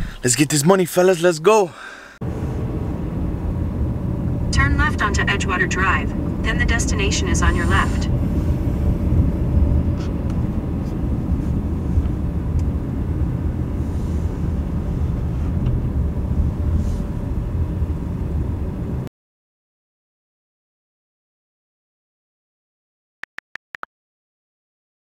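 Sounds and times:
car cabin low rumble: 2.2s - 19.1s.

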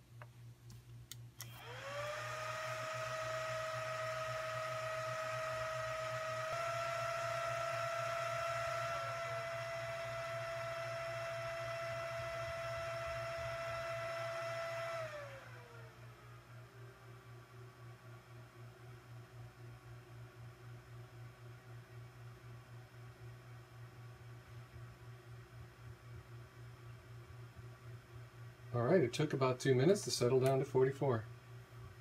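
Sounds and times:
cooling fans whining: 0.0s - 32.0s
clicks: 30.4s - 30.7s.

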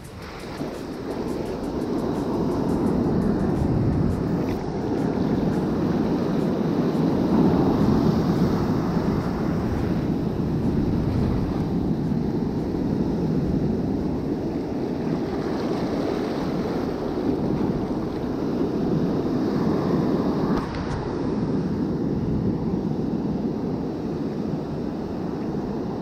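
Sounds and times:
ocean surf breaking on sand: 0.0s - 26.0s
wind noise on microphone: 0.0s - 26.0s.

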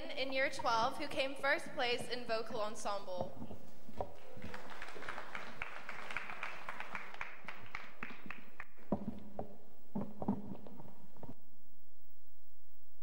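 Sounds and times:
audience applauding: 4.0s - 8.9s.

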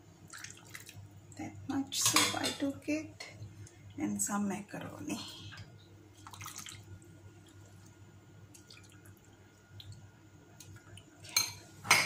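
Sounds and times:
liquid drips and splashes: 0.3s - 1.5s, 6.1s - 11.6s.

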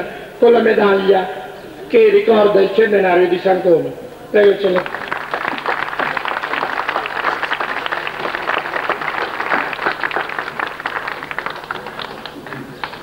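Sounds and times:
crowd applauding: 4.8s - 13.0s.

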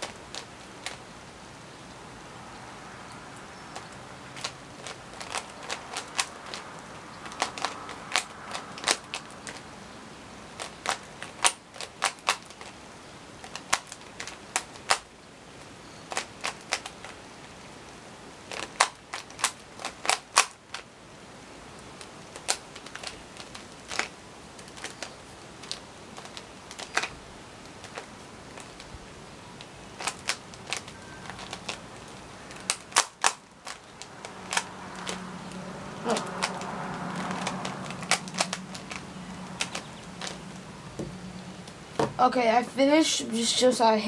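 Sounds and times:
plastic puzzle cube clicking: 3.7s - 6.6s, 7.2s - 9.6s, 10.6s - 12.8s, 13.4s - 15.1s, 16.1s - 17.6s, 18.5s - 20.8s, 22.0s - 28.9s, 29.6s - 40.4s.

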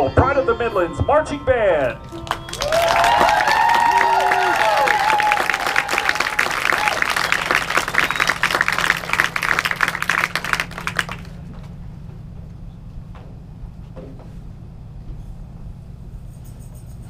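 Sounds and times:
low steady hum: 0.0s - 17.0s
crowd applauding: 2.0s - 11.5s.

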